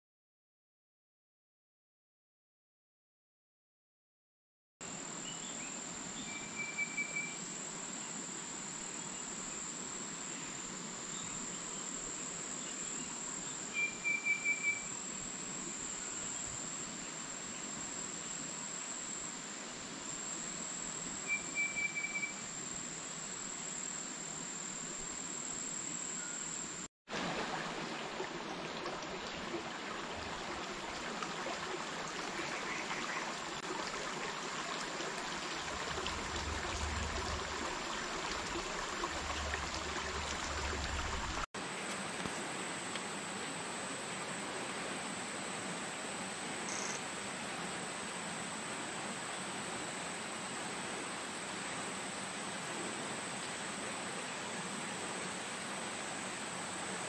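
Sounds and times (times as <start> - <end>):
insect drone: 4.8 - 26.9, 27.9 - 57.0
stream rushing: 27.1 - 42.9.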